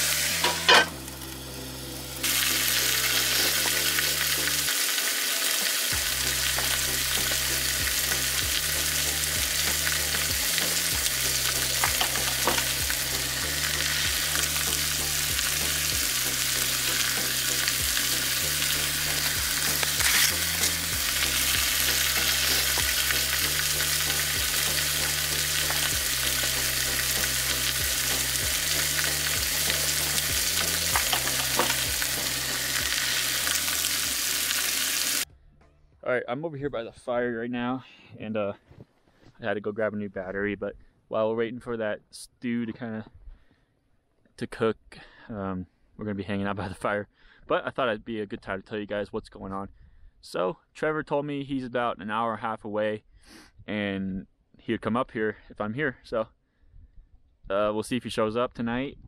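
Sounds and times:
meat sizzling in a pan: 0.0 - 35.3.

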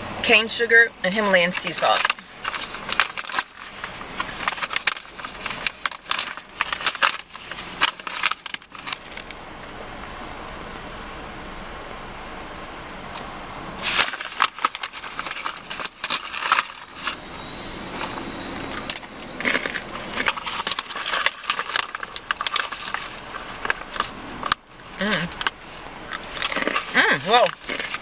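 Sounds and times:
plastic pouch crinkling: 1.2 - 9.4, 13.8 - 17.2, 18.0 - 28.0
crunchy chewing: 17.9 - 28.0.

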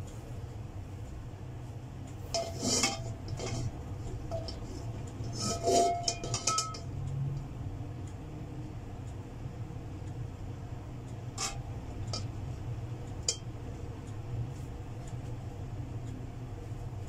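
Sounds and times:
steady low hum: 0.0 - 17.0
metal wok clinks: 5.5 - 6.9.

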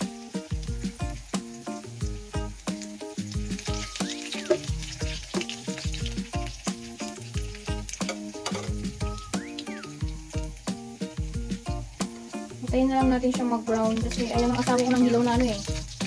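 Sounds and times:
garlic sizzling in hot oil: 0.0 - 16.0
spoon stirring in wok: 7.0 - 8.8
music with deep bass: 8.6 - 16.0.

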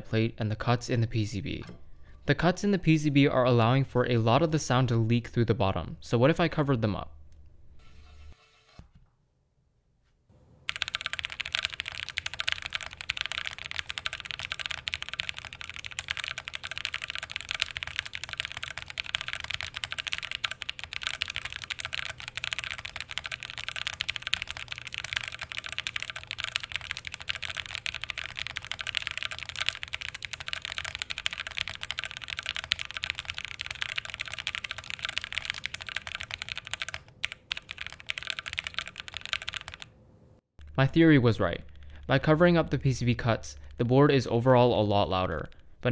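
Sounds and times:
fast typing on mechanical keyboard: 10.7 - 39.9.

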